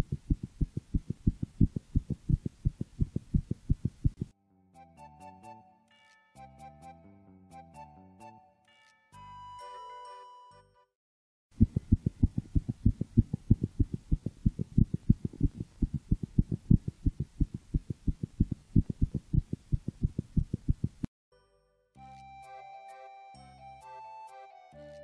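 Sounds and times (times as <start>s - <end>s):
cat heartbeat through stethoscope: 0.0s - 4.3s, 11.6s - 21.1s
music: 4.4s - 11.0s, 21.3s - 25.0s.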